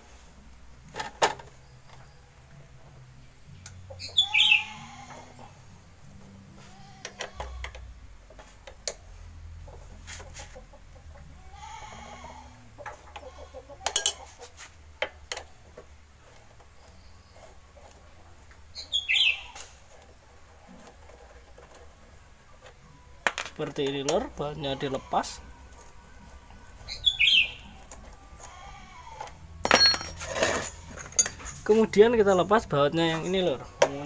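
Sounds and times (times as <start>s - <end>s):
chickens calling: 3.8s - 5.6s, 10.2s - 14.6s, 24.4s - 29.0s.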